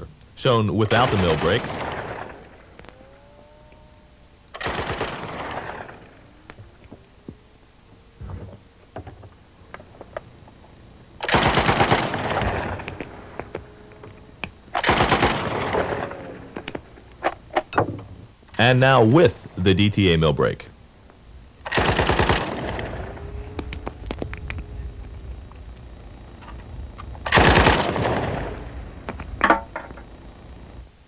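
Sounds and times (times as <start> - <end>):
submachine gun bursts: 4.6 - 6.0, 11.2 - 13.6, 14.7 - 16.8, 21.7 - 23.7, 27.2 - 29.7.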